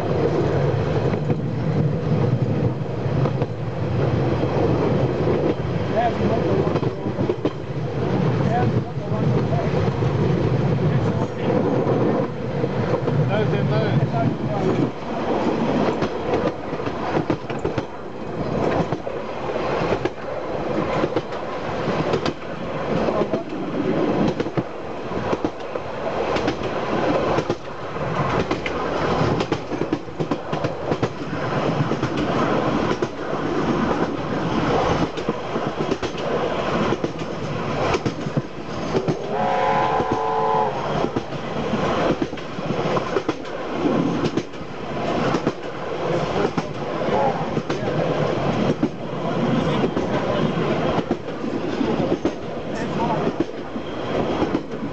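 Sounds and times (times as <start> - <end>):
train wheels clicking on rail joints: 0.0 - 3.7, 4.5 - 54.9
train rumble: 0.0 - 54.9
steam locomotive chime whistle: 39.2 - 41.0.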